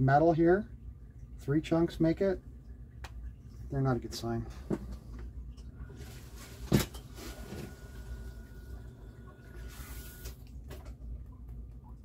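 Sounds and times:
sump pump running: 3.5 - 12.0.

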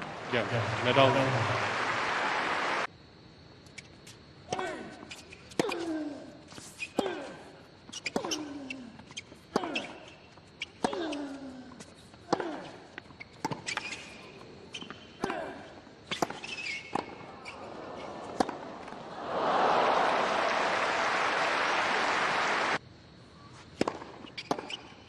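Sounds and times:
crowd applauding and cheering: 0.0 - 2.9, 19.0 - 22.8
racket hitting tennis ball: 8.0 - 8.5, 18.2 - 19.0, 23.7 - 24.8.

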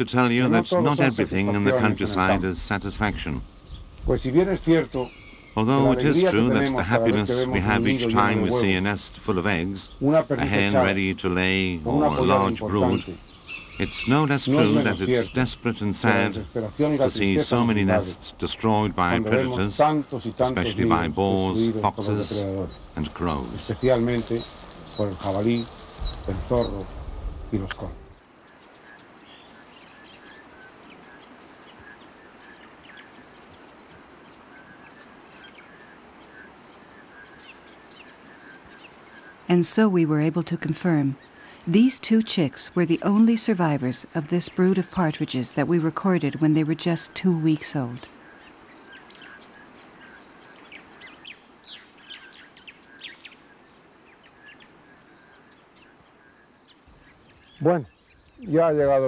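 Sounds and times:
steady hiss: 0.0 - 39.9
bird chirps: 0.0 - 59.0.

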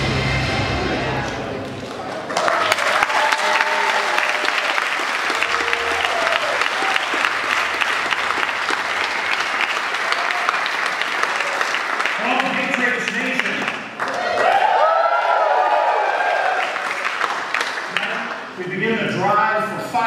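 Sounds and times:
audience applauding: 1.2 - 18.6.

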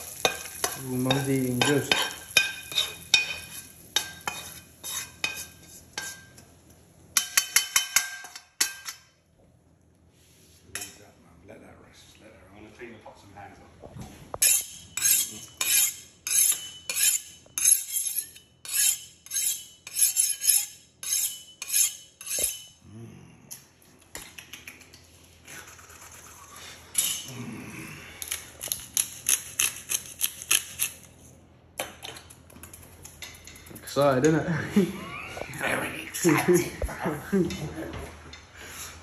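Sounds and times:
knife scraping on honing steel: 0.2 - 6.4, 14.4 - 22.8, 28.3 - 31.4.

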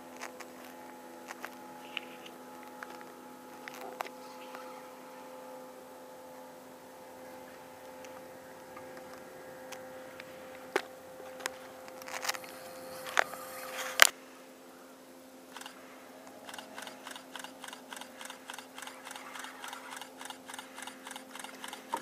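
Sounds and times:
steady hum: 0.0 - 22.0
sharp clicks: 15.5 - 15.8, 16.4 - 22.0.

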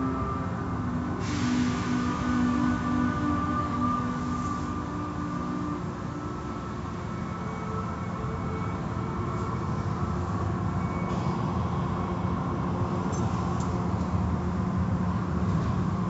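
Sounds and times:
faint steady tones: 0.0 - 16.0
machinery hum: 0.0 - 16.0
water spray: 1.2 - 2.8.

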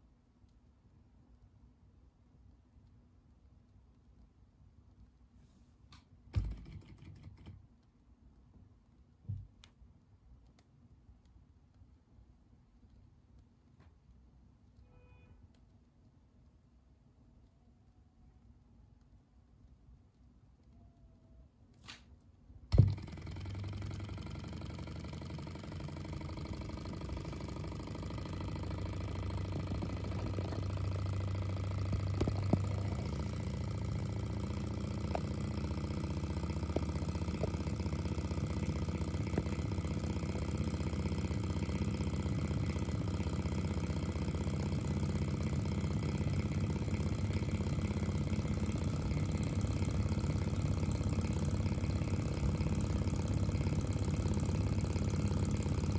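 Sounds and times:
flywheel click: 22.7 - 55.9
stirling engine running: 22.7 - 55.9.

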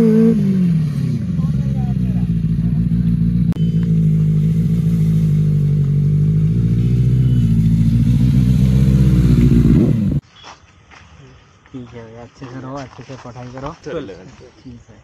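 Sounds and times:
motorcycle engine running at low revs: 0.0 - 10.2.

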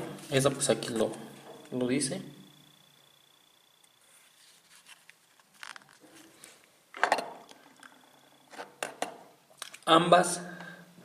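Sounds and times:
camera handling clicks and rustles: 4.7 - 8.0.

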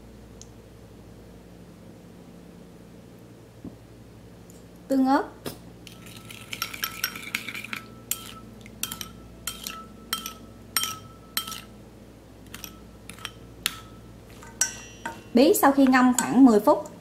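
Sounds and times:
metal spoon clinking ceramic bowl: 5.9 - 11.7, 12.5 - 16.4.

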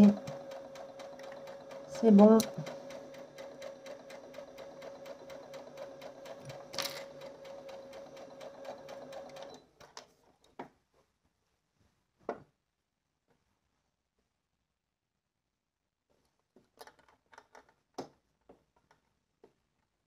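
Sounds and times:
sewing machine stitching: 0.0 - 10.0.

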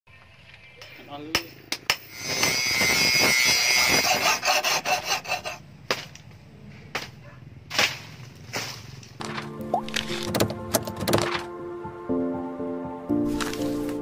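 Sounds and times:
blade scraping with high whine: 2.1 - 5.6
blade chopping plant stalks: 5.8 - 6.3, 6.9 - 11.5, 13.3 - 14.0.

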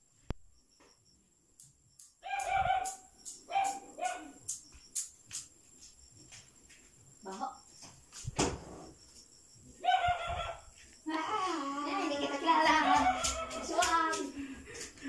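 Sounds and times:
rooster crowing: 12.7 - 13.8.

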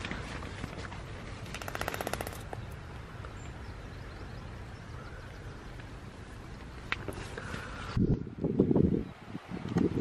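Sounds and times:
rattle of clicks: 1.4 - 2.6
wind buffeting microphone: 2.6 - 10.0.

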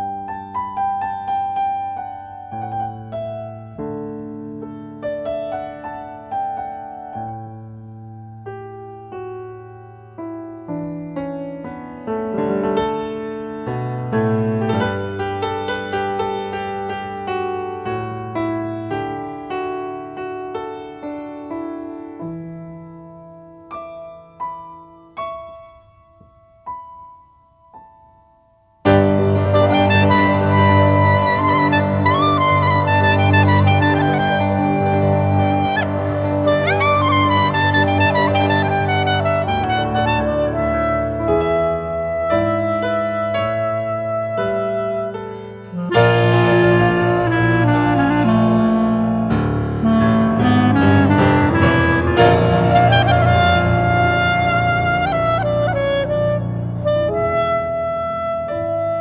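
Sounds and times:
piano music: 0.0 - 59.0
full instrumental arrangement: 28.8 - 59.0.

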